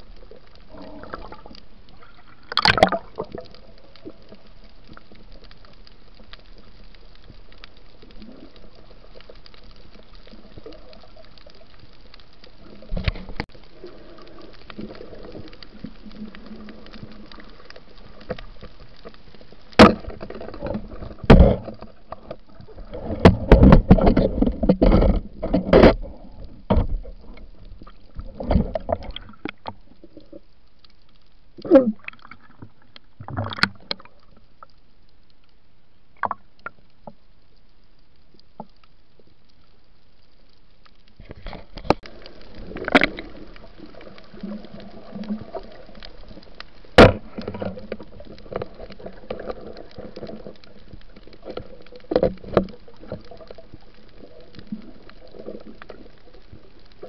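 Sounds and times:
muffled underwater hiss: 0.0s - 57.0s
bubbling and splashing bursts: 2.1s - 3.5s.

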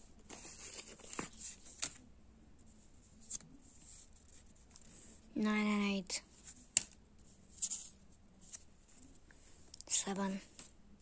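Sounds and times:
cards rustling: 0.2s - 2.0s.

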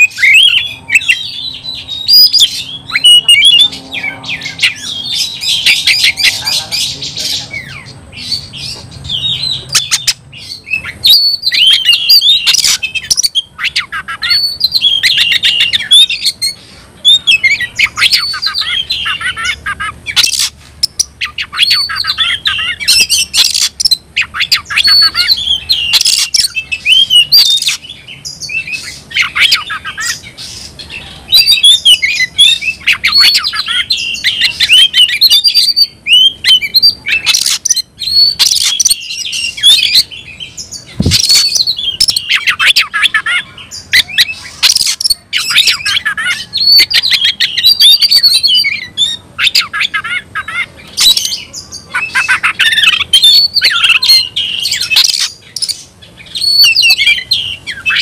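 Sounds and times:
bird singing whistles and clicks: 25.9s - 27.8s, 37.3s - 39.8s, 52.9s - 55.8s.

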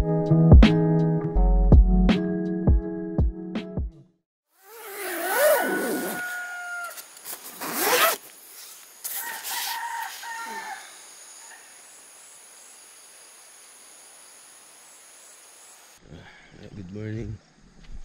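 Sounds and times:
high insect buzz: 4.6s - 16.0s
rooster crowing: 5.3s - 7.2s, 9.1s - 11.7s.

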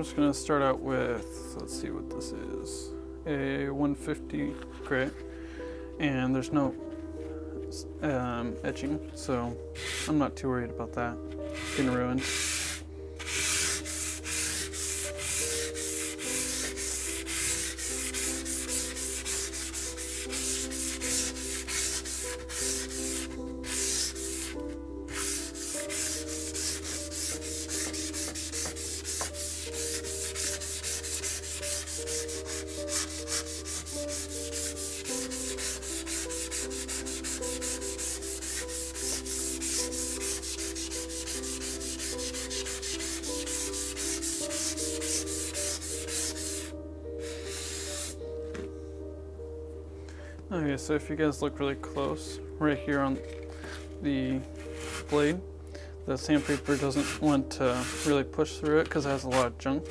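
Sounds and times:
sandpaper scraping rust off saw blade: 11.6s - 48.2s, 56.4s - 58.1s.

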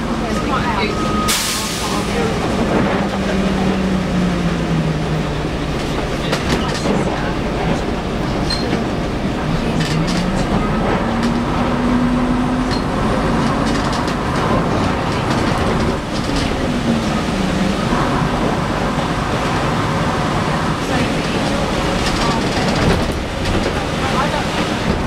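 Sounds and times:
bus engine and transmission whine: 0.0s - 25.0s
body rattles and clicks: 12.8s - 16.6s.

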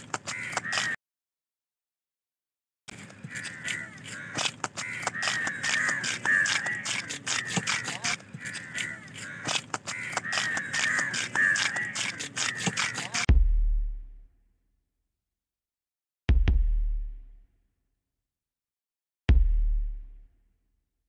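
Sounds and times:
knife scraping fish scales: 2.9s - 13.3s.

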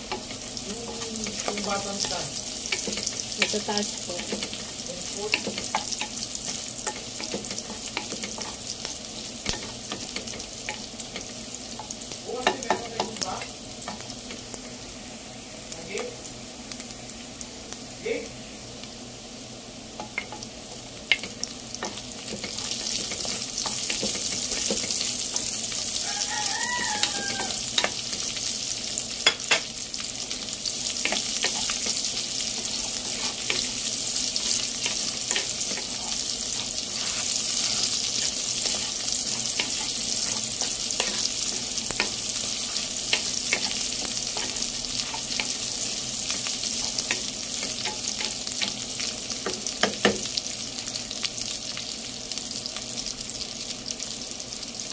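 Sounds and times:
food sizzling in hot oil: 0.0s - 54.9s
spatula scraping and tapping pan: 5.2s - 8.7s, 21.1s - 25.6s, 26.7s - 28.2s, 31.0s - 50.3s.

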